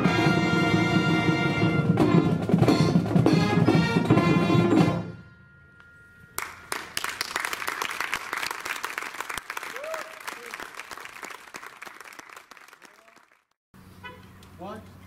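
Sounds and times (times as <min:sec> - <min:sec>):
marching band with brass and drums: 0:00.0 - 0:05.2
crowd applauding: 0:06.4 - 0:13.6.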